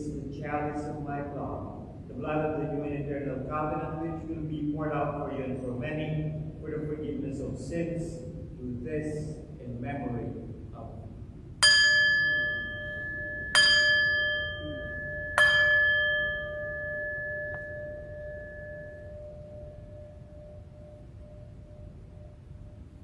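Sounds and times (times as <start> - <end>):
altar bell ringing: 11.6 - 23.0.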